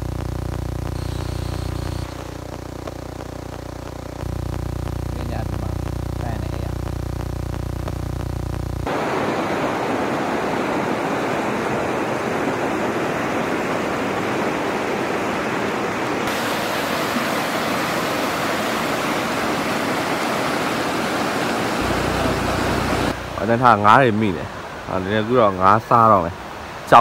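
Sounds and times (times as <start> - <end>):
river rushing over boulders: 8.9 - 27.0.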